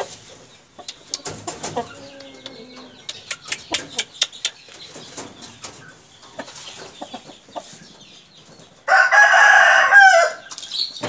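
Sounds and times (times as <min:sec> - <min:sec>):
rooster crowing: 0:08.9 - 0:10.4.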